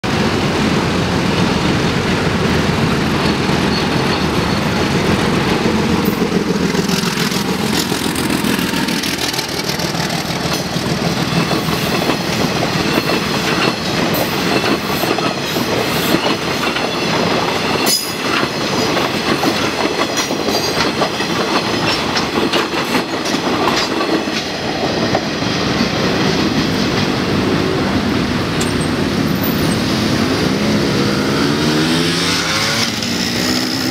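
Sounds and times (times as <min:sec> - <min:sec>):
locomotive engine running: 0:00.1 - 0:15.1
train wheels clacking on rails: 0:00.1 - 0:30.9.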